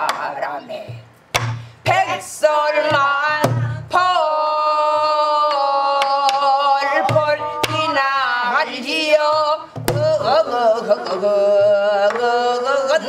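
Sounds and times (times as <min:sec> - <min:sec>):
woman singing with vibrato: 0:00.0 - 0:01.1, 0:01.8 - 0:13.0.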